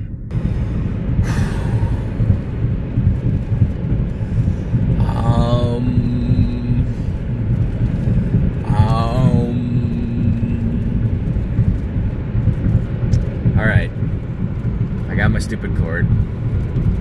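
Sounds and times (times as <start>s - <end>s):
car engine and tyres rumbling: 0.0s - 17.0s
voice-like groan: 5.0s - 7.4s, 8.6s - 11.4s.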